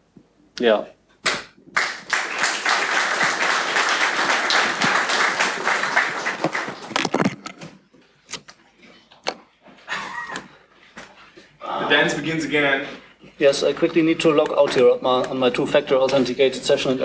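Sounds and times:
audience applauding: 1.8s - 7.2s.

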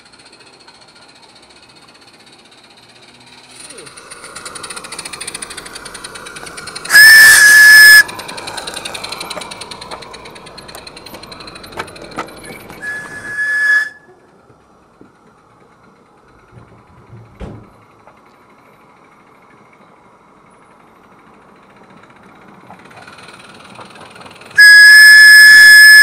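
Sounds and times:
running locomotive beat: 0.0s - 26.0s
steam locomotive whistle: 6.8s - 8.5s, 12.8s - 14.3s, 24.6s - 26.0s.

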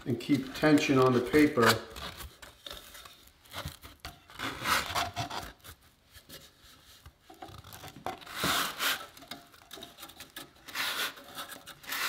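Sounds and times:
sandpaper scraping on metal drum: 8.3s - 9.2s, 10.6s - 12.0s.

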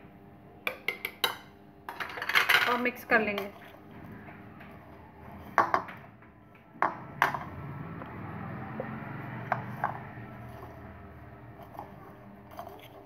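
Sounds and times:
plastic spoon tapping bowl: 0.7s - 1.5s
soft scraping in bowl: 3.2s - 4.1s, 8.8s - 13.0s.

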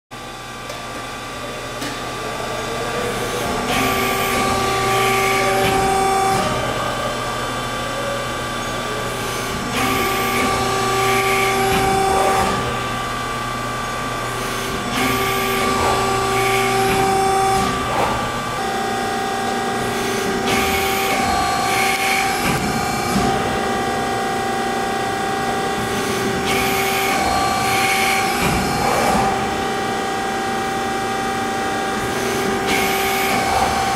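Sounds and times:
hydraulic power unit humming: 0.1s - 33.9s.

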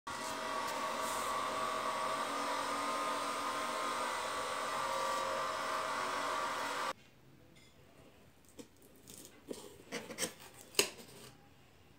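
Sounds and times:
electric motor humming: 0.1s - 6.9s.

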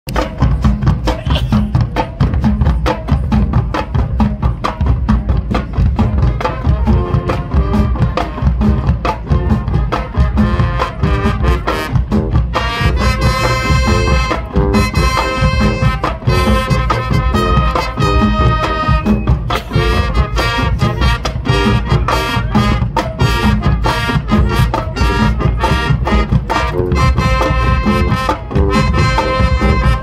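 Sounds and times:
marching drumline beat: 0.1s - 30.0s
brass chords: 6.0s - 30.0s.

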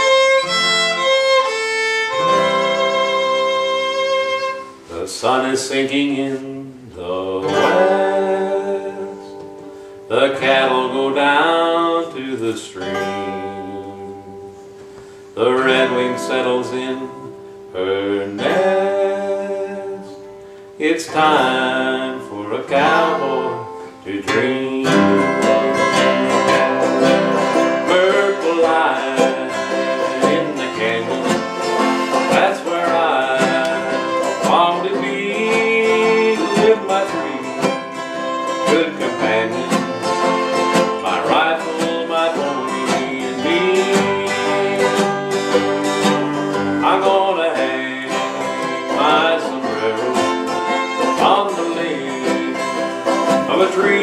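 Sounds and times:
fiddle playing sliding notes: 0.0s - 5.1s, 21.2s - 23.9s, 24.7s - 54.0s
picked banjo: 0.0s - 14.8s, 20.9s - 54.0s
acoustic guitars: 0.0s - 54.0s.

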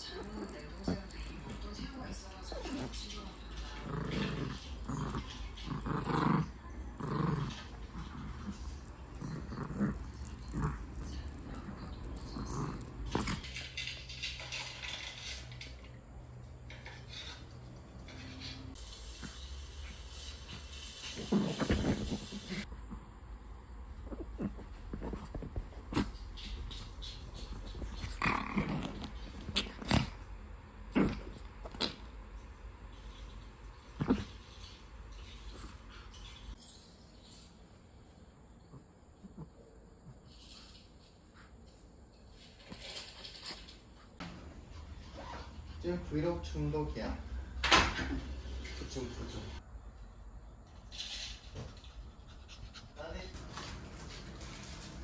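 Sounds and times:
small dog growling in play: 0.0s - 13.6s, 21.1s - 32.4s, 33.8s - 34.6s, 38.6s - 40.3s.

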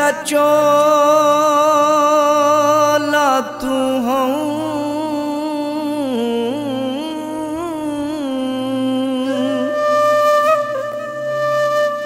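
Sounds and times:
folk song melody: 8.3s - 12.0s.

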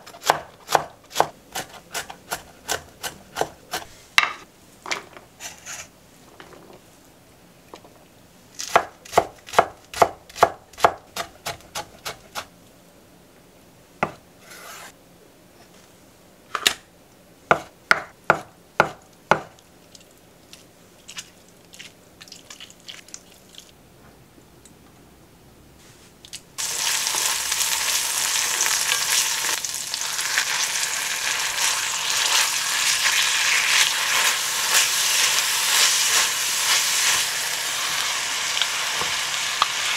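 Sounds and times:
knife chopping on wooden board: 0.0s - 4.4s, 8.7s - 12.5s, 14.0s - 14.9s, 17.5s - 19.5s
ground beef sizzling in pan: 26.6s - 39.9s.

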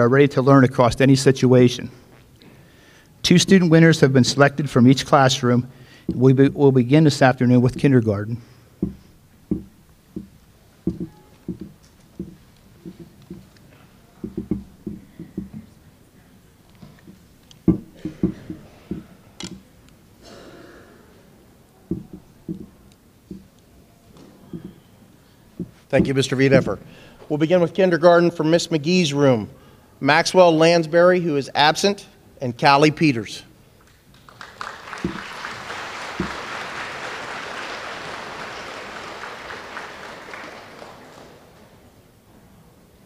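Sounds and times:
dull low thump: 8.8s - 13.5s
dull thumps and knocks: 8.8s - 13.5s, 14.2s - 15.8s, 16.8s - 19.2s, 21.9s - 23.5s, 24.2s - 24.8s, 25.6s - 26.2s
audience applause: 34.1s - 41.8s.

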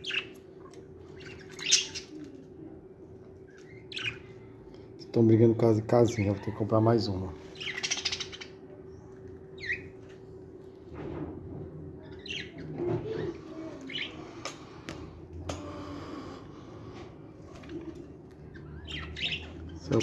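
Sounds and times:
budgerigars chirping: 3.7s - 4.2s, 7.6s - 8.5s, 18.5s - 20.0s.

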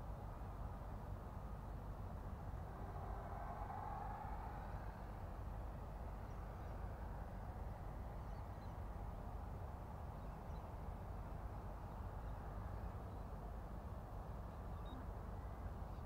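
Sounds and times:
wind rumble on microphone: 0.0s - 16.0s.

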